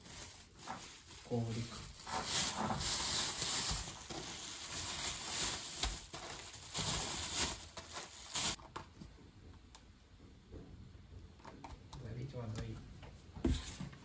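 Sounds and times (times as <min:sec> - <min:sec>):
seed grain pattering: 0:00.0 - 0:08.6
plastic bags crinkling: 0:00.0 - 0:08.8.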